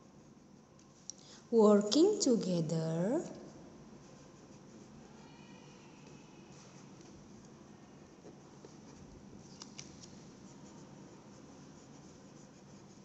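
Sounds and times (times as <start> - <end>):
pen scratching on paper: 10.0 - 13.0.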